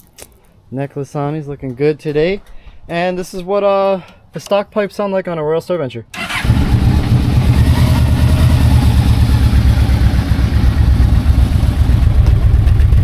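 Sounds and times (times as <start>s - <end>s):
motorcycle engine idling: 6.3s - 13.0s.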